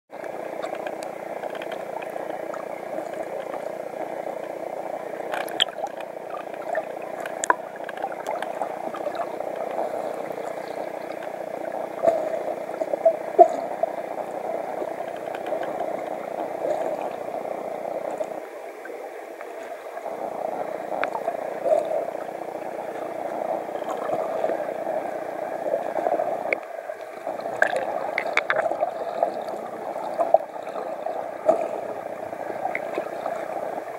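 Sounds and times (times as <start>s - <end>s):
underwater water rush: 0.1s - 33.9s
sharp clicks underwater: 0.2s - 4.6s, 5.2s - 11.4s, 14.8s - 17.2s, 26.4s - 29.5s, 32.6s - 33.5s.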